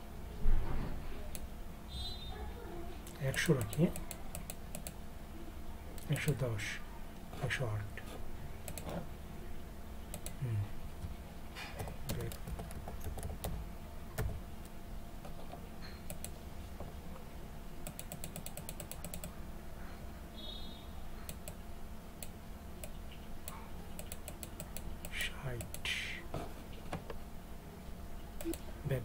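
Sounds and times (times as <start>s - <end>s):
steady low hum: 0.0s - 29.0s
keyboard keystrokes: 17.8s - 19.3s.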